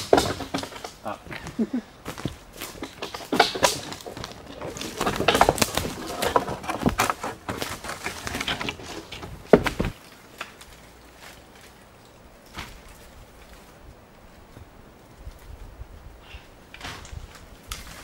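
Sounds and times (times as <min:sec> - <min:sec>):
dry branches clattering and scraping: 0:00.0 - 0:18.0
branch snapping: 0:09.5 - 0:13.6, 0:16.7 - 0:18.0.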